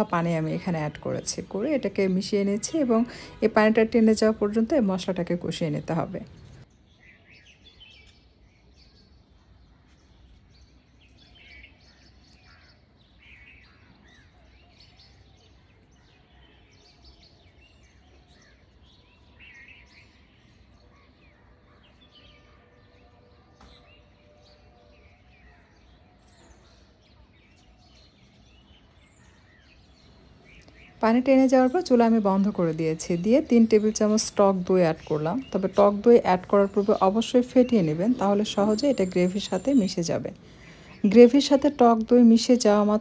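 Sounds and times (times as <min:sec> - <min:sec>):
low steady background noise: 0:00.0 - 0:43.0
small birds chirping: 0:00.0 - 0:43.0.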